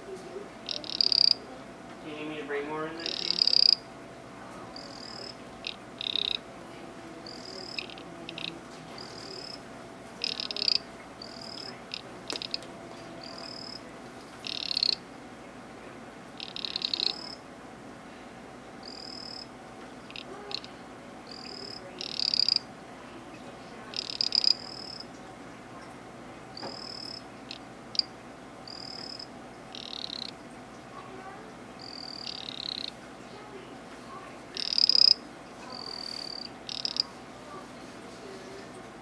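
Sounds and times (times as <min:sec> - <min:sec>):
frog buzzing trills: 0:00.6 - 0:01.4, 0:03.0 - 0:03.8, 0:04.8 - 0:06.5, 0:07.2 - 0:09.6, 0:10.2 - 0:15.0, 0:16.4 - 0:17.4, 0:18.8 - 0:19.5, 0:20.1 - 0:22.7, 0:23.9 - 0:25.1, 0:26.6 - 0:30.4, 0:31.8 - 0:33.0, 0:34.5 - 0:37.2.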